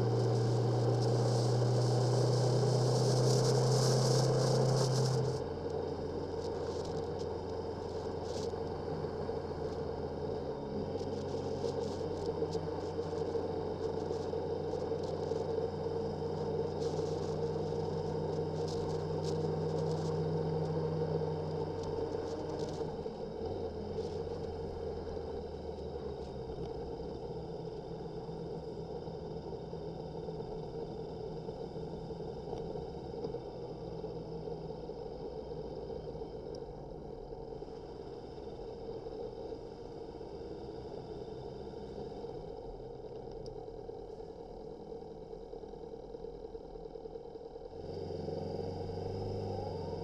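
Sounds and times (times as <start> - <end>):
motorcycle engine running: 0.0 - 24.9
road noise: 0.0 - 50.0
wind: 0.0 - 50.0.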